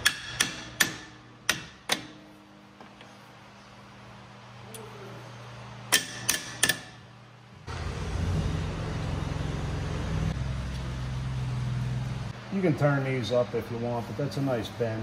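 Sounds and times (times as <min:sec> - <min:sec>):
low engine rumble: 0:07.4 - 0:15.0.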